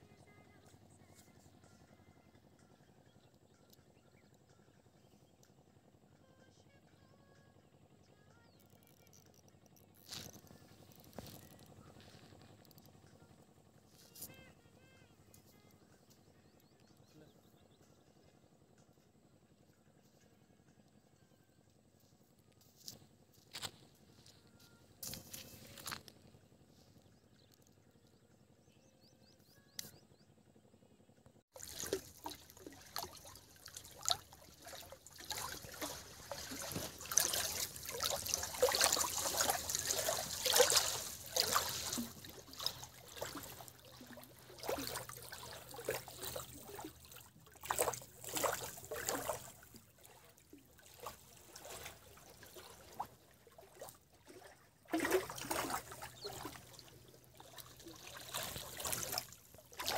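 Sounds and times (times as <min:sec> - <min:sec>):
waves lapping against rock: 0:31.6 - 0:59.9.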